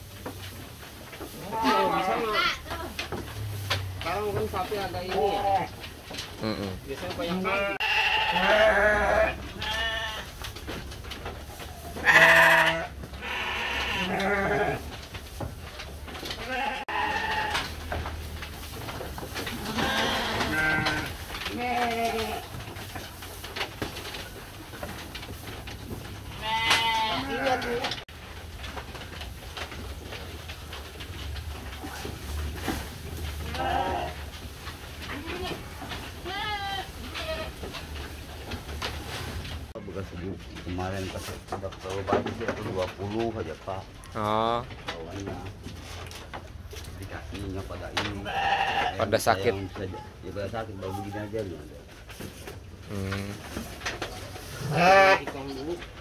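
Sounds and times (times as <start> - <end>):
sheep bleating: 1.4 - 2.6, 7.2 - 10.2, 12.0 - 14.8, 16.4 - 17.6, 26.4 - 28.0, 48.3 - 49.0, 54.6 - 55.3.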